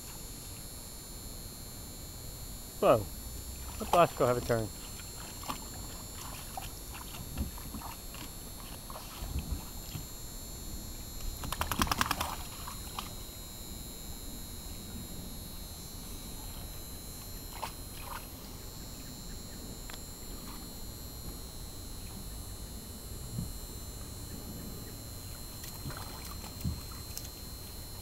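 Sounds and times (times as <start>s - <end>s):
dog splashing in water: 4.9s - 10.0s, 11.4s - 13.1s, 25.6s - 27.3s.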